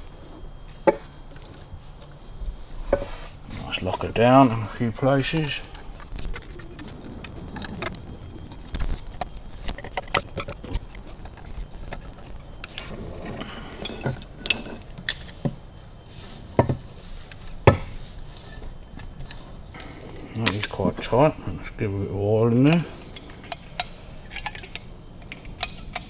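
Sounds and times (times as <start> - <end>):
tools and metal parts clinking: 8.8 - 15.5, 16.6 - 21.1, 22.6 - 26.0.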